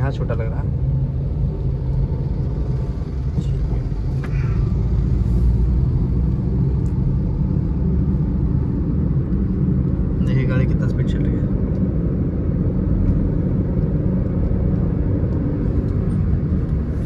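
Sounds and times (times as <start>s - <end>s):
car engine and tyre noise: 0.0s - 17.0s.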